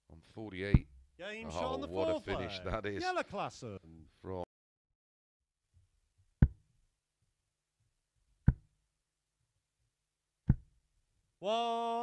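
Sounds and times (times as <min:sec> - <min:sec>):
man calling out: 0:01.2 - 0:03.7, 0:11.4 - 0:12.0.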